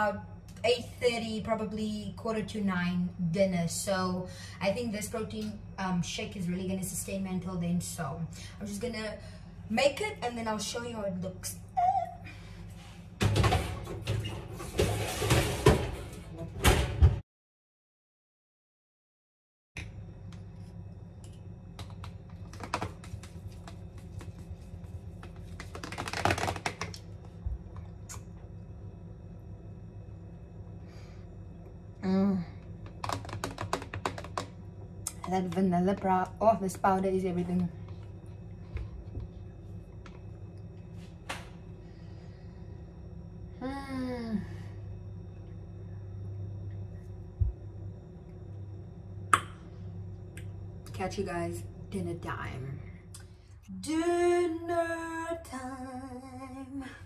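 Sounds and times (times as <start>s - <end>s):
low steady hum: 0.0s - 17.2s, 19.8s - 57.0s
woman humming appreciatively: 43.6s - 44.5s.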